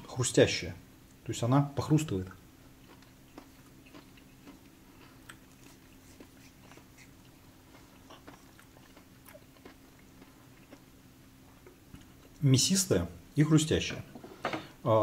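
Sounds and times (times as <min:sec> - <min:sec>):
faint crunchy chewing: 0:02.3 - 0:12.4.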